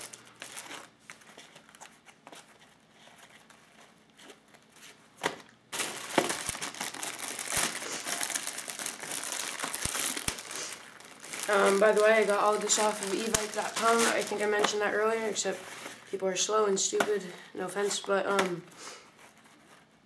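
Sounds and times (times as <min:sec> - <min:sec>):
plastic bags crinkling: 0:00.0 - 0:02.6, 0:05.3 - 0:16.2.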